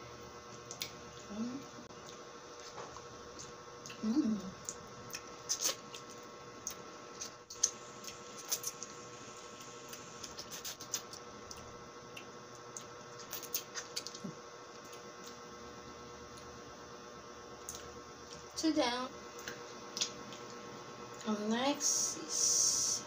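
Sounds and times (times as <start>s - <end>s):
faint steady hum: 0.0s - 23.0s
wet mouth sounds eating: 0.6s - 8.9s, 9.9s - 15.4s.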